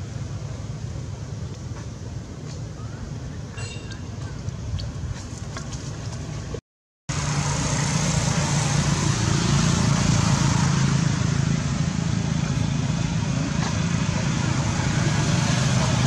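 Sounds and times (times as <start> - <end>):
road traffic noise: 0.0 - 16.0
vehicle engine running: 7.1 - 16.0.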